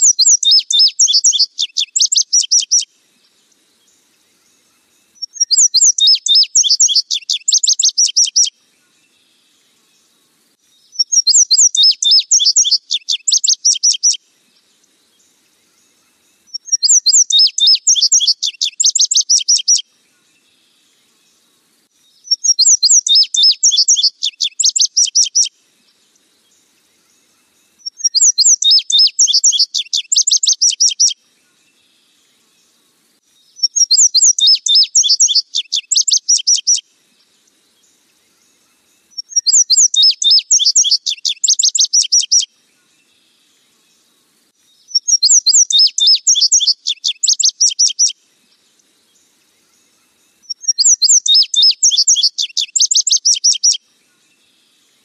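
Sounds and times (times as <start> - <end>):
bird singing high sharp notes: 0.0 - 2.9, 5.2 - 8.5, 10.9 - 14.2, 16.5 - 19.8, 22.2 - 25.5, 27.8 - 31.2, 33.6 - 36.8, 39.1 - 42.5, 44.9 - 48.1, 50.5 - 53.8.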